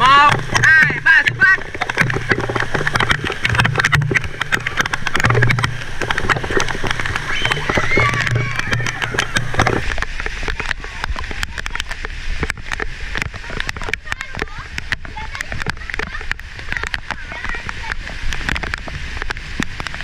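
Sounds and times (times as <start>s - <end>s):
heavy rain pattering: 0.0s - 20.0s
children shouting and squealing: 7.2s - 9.6s.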